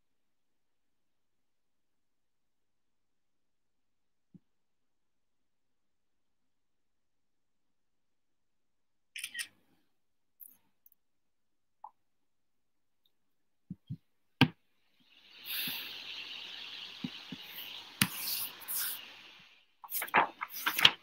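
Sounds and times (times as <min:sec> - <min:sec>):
rustling and handling noise: 0:19.8 - 0:21.0.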